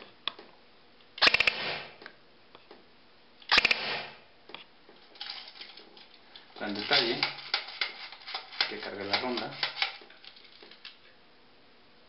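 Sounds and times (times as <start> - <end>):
airsoft gun firing: 1.2 - 2.0, 3.5 - 4.2.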